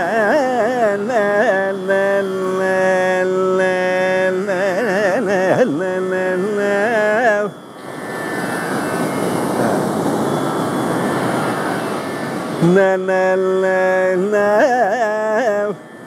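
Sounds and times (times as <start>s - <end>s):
man singing: 0.0s - 7.6s, 12.6s - 15.9s
ocean surf breaking: 7.8s - 14.2s.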